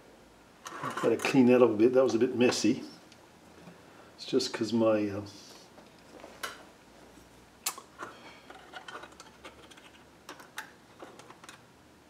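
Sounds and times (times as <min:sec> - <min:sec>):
small parts and tools clicking: 0:07.7 - 0:11.6.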